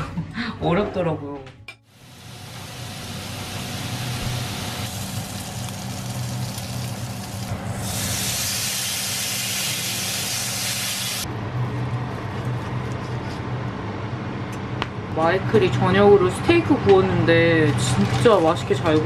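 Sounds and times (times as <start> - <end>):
steak sizzling on grill pan: 2.0 - 11.2.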